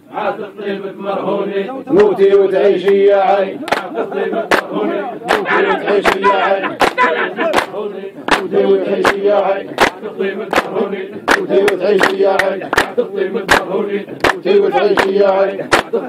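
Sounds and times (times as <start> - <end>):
men singing folk chant: 0.0 - 16.0
hand clapping: 3.7 - 3.9, 4.5 - 4.7, 5.3 - 16.0.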